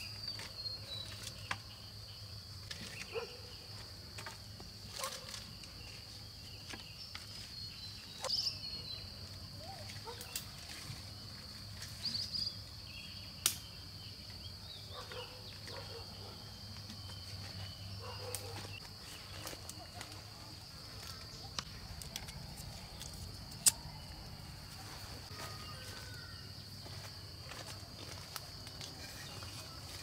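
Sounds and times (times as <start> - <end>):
insects droning: 0.0 - 30.0.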